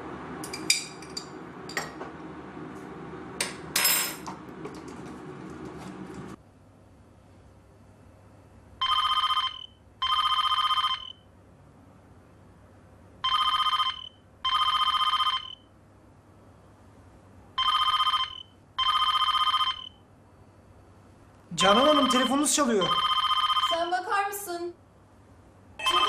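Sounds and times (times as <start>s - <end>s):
telephone ringing with electronic trill: 8.8s - 11.2s, 13.2s - 15.6s, 17.6s - 20.0s, 21.7s - 23.9s, 25.8s - 26.0s.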